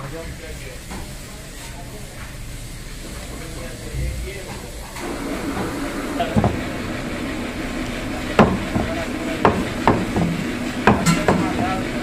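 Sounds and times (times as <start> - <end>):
cleaver chopping meat on wood: 8.4 - 11.5.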